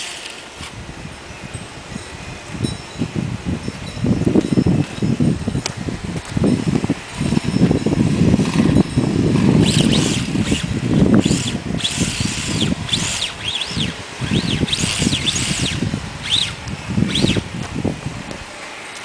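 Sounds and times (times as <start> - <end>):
high motor whine: 0.0 - 19.0.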